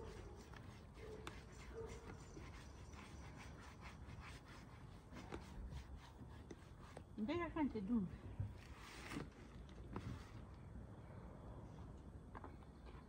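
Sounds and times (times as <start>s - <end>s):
paintbrush scratching on wood: 0.0s - 7.2s.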